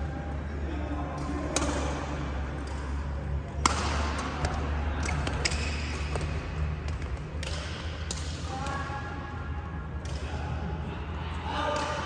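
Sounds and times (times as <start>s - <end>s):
low hum in hall: 0.0s - 12.0s
rackets hitting shuttlecock: 1.1s - 8.8s.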